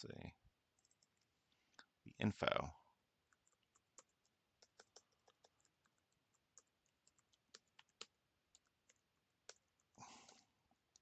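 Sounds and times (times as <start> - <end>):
keyboard typing: 0.7 - 1.3, 3.2 - 11.0.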